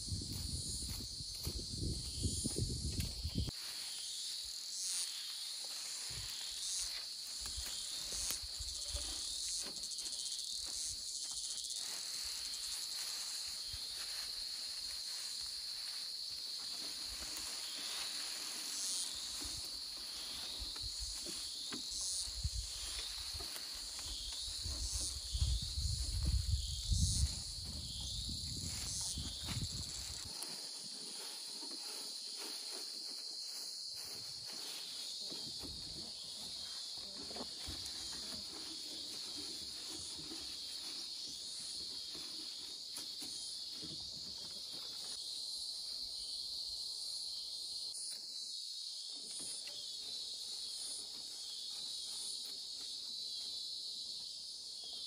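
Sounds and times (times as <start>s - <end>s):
high-pitched insect chorus: 0.0s - 55.0s.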